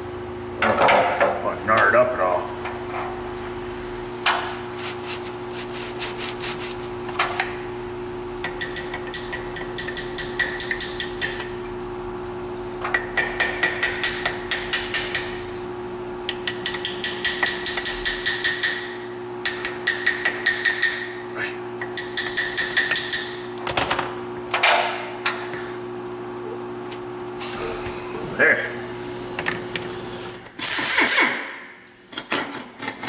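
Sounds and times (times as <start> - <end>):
small hammer tapping metal: 8.4 - 11.5, 12.9 - 15.3, 16.3 - 21.1, 21.9 - 23.4.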